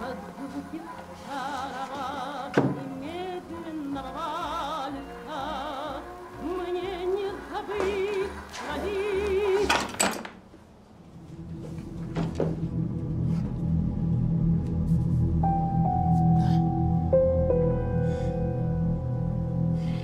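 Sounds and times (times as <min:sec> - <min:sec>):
gramophone vocal record: 0:00.0 - 0:10.0
low dark drone: 0:10.9 - 0:20.0.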